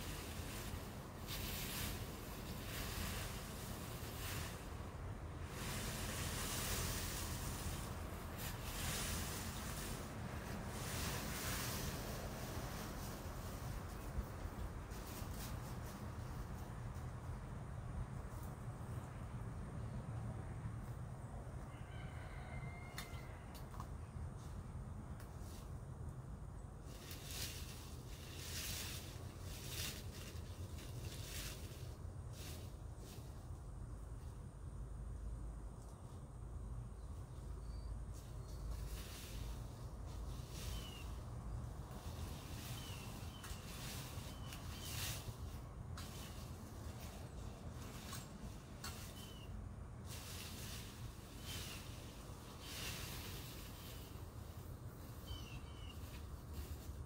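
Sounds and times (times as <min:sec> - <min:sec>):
rustling and scraping: 0:00.0 - 0:17.2, 0:26.8 - 0:33.6, 0:38.1 - 0:57.0.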